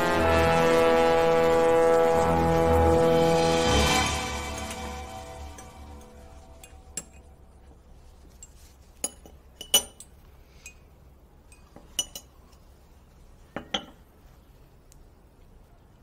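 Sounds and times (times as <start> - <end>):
teaspoon and teacups clinking: 5.5 - 7.3, 8.3 - 10.9, 11.5 - 12.6.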